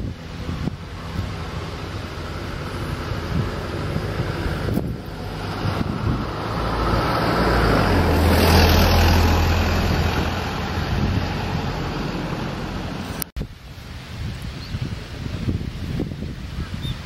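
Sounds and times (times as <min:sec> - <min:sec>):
road vehicle passing: 0:00.0 - 0:13.3.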